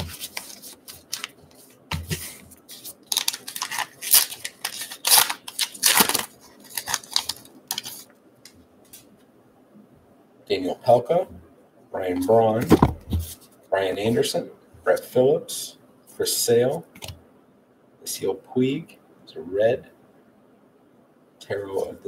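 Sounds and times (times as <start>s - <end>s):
wrapper tearing and crinkling: 2.8s - 8.0s.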